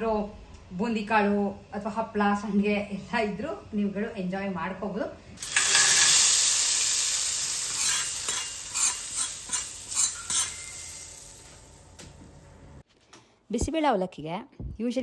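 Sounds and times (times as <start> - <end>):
hot oil sizzling: 5.4 - 12.2.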